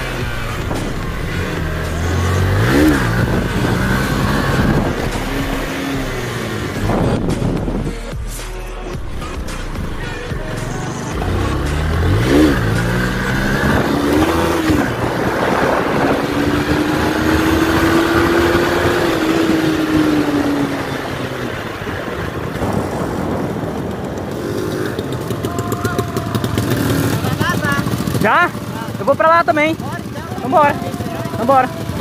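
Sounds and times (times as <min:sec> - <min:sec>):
motorcycle engine revving: 0:00.0 - 0:08.2, 0:08.8 - 0:32.0
wind noise: 0:00.0 - 0:08.3, 0:12.0 - 0:27.5.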